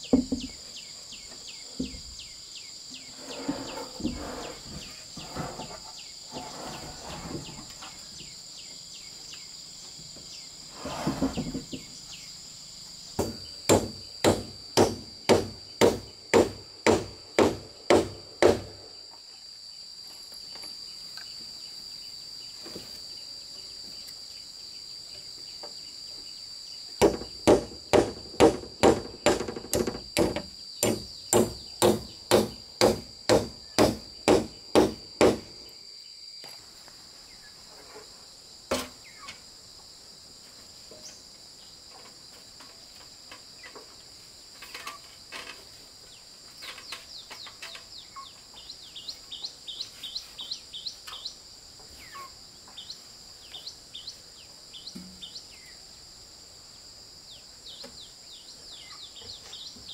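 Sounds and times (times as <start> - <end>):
high insect drone: 0.0 - 59.9
hammering: 13.2 - 18.7, 27.0 - 35.5.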